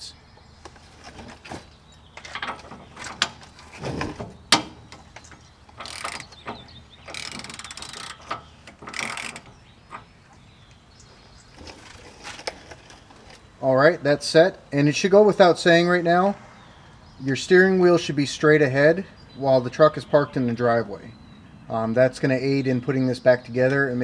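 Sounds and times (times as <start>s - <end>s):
ratchet clicking: 5.7s - 9.5s.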